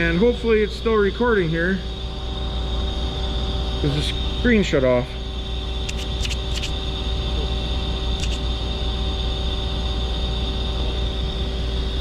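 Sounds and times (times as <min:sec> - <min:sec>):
low machine hum: 0:00.0 - 0:12.0
short clicks: 0:05.8 - 0:06.8, 0:08.2 - 0:08.4.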